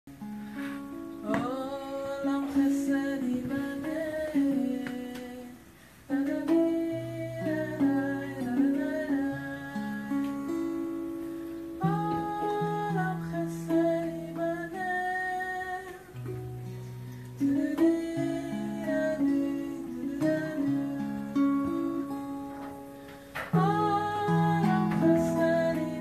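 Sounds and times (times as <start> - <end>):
acoustic guitar: 0.1 - 26.0
person singing: 0.5 - 26.0.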